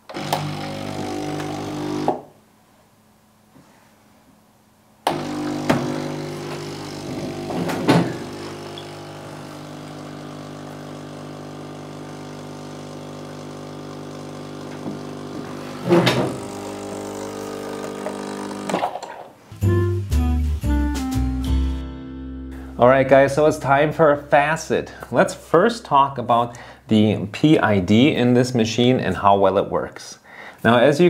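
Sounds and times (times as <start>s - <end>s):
espresso machine pump humming: 0.0s - 2.2s, 5.1s - 19.0s.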